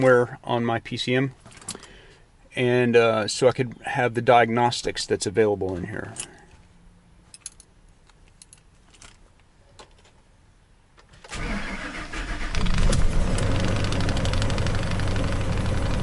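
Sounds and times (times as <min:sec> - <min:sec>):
truck engine cranking and starting: 0:11.1 - 0:16.0
engine idling: 0:11.7 - 0:16.0.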